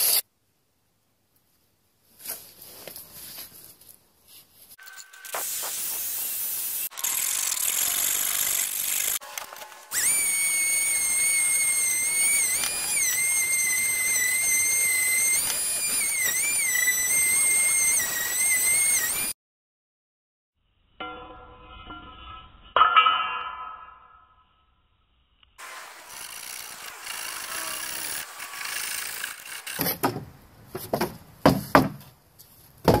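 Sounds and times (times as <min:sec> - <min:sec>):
power tool grinding metal: 0:06.3 - 0:19.3, 0:25.6 - 0:29.8.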